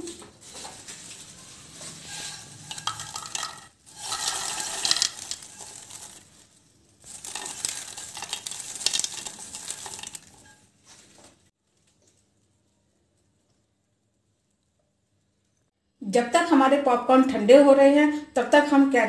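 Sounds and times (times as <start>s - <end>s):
popcorn pouring into a bowl: 2.0s - 10.6s.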